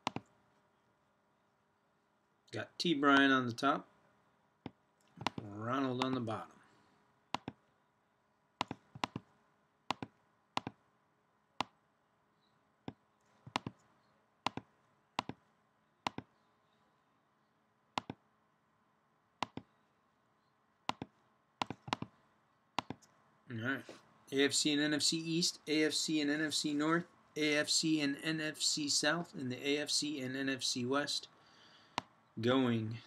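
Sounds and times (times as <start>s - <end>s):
mouse and keyboard clicks: 0.0s - 0.3s, 5.0s - 6.2s, 7.4s - 7.6s, 8.6s - 9.3s, 9.9s - 10.8s, 12.9s - 13.9s, 14.5s - 15.4s, 16.1s - 16.3s, 18.0s - 18.2s, 19.4s - 19.7s, 20.9s - 22.1s, 22.8s - 23.1s.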